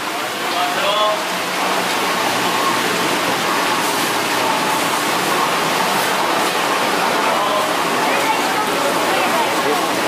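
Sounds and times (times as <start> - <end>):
running water rushing: 0.0 - 10.0
faint voices: 6.6 - 10.0.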